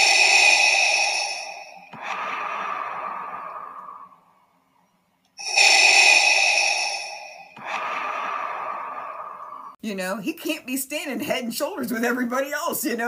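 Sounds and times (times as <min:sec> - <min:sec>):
mechanical respirator breathing: 0:00.0 - 0:04.4, 0:05.4 - 0:09.8.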